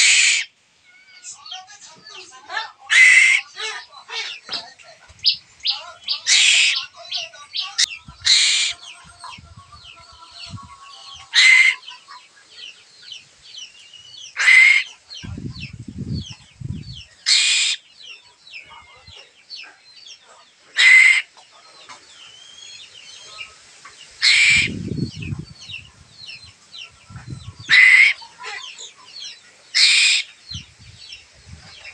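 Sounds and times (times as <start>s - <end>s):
bird chick harsh begging calls: 0.0s - 1.5s, 2.6s - 4.4s, 5.2s - 9.0s, 9.8s - 12.3s, 14.2s - 17.9s, 20.7s - 21.4s, 24.2s - 30.7s
birds chirping faintly: 0.0s - 31.9s.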